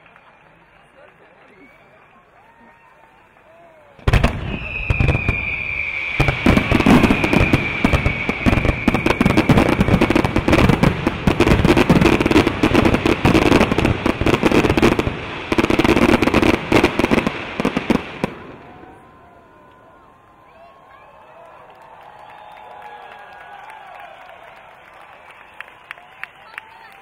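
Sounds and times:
high-pitched hiss of ground fountains: 0:00.7 - 0:18.6.

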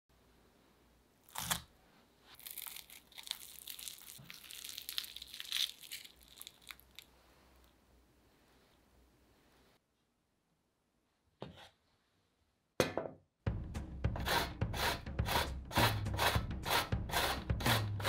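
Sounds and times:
crust crackling and crunching: 0:02.3 - 0:07.7.

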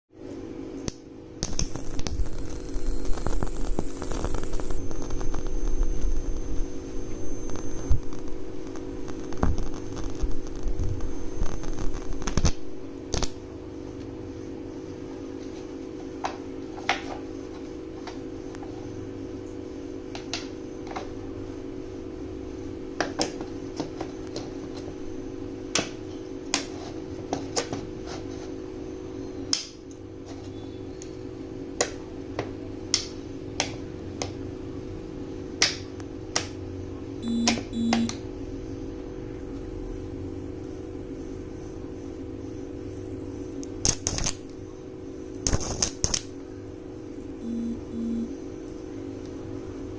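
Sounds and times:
steady low hum: 0:00.1 - 0:49.9
electric arc buzzing and crackling: 0:00.8 - 0:13.4, 0:43.6 - 0:44.6, 0:45.4 - 0:46.4, 0:47.4 - 0:48.3
thin high whine: 0:01.4 - 0:19.9, 0:36.9 - 0:38.9, 0:44.4 - 0:48.9.

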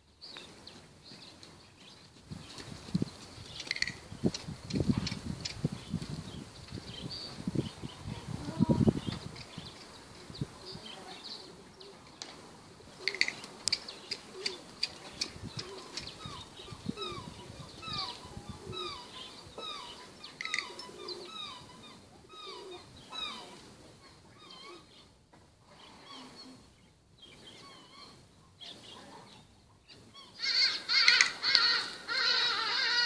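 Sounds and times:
bird calling: 0:03.5 - 0:04.1, 0:12.9 - 0:33.0.

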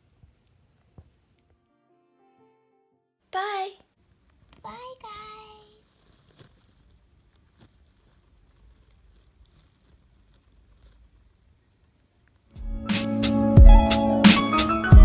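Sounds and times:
child's voice: 0:03.3 - 0:03.9, 0:04.6 - 0:05.8
faint clicks and rustles: 0:04.0 - 0:12.6.

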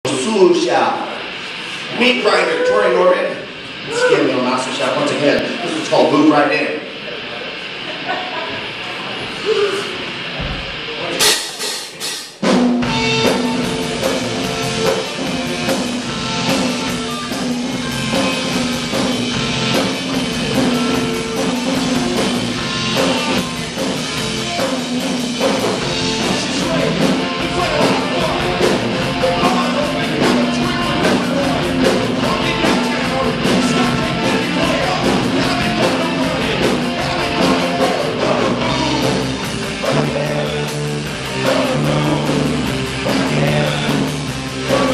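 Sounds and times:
drum kit playing: 0:10.1 - 0:44.9
electric guitar: 0:12.4 - 0:44.9
man singing: 0:25.8 - 0:44.9.

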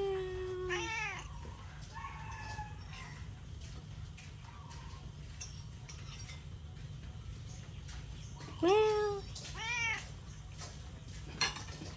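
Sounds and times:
cat meowing: 0:00.6 - 0:01.3, 0:09.6 - 0:10.1.

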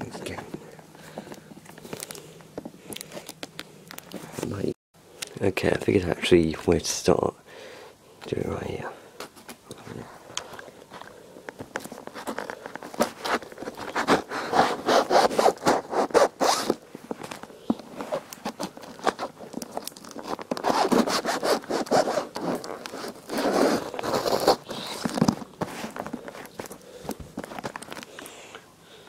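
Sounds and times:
packaging rustling: 0:10.5 - 0:28.3
packaging being ripped open: 0:18.6 - 0:25.4.

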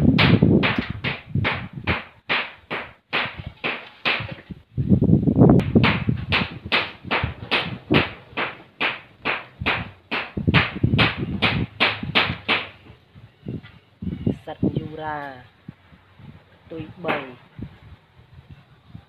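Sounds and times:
rhythmic sharp knocks: 0:05.6 - 0:12.8.

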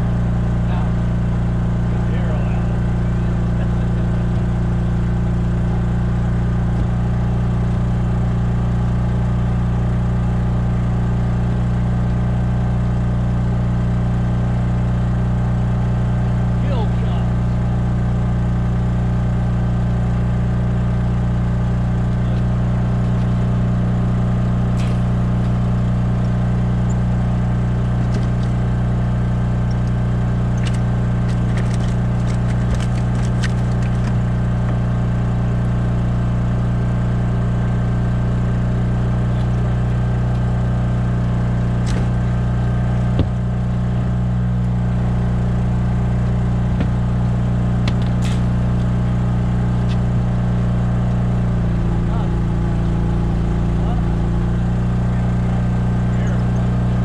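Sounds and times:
small engine droning: 0:00.0 - 0:57.0.

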